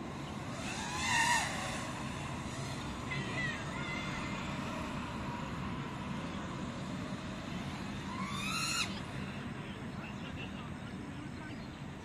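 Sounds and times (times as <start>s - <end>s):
quadcopter motors whining: 0.0s - 9.4s
steady background noise: 0.0s - 12.0s.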